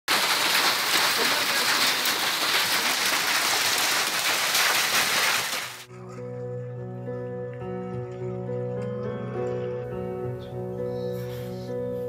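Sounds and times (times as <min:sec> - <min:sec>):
heavy rain and hail: 0:00.1 - 0:05.9.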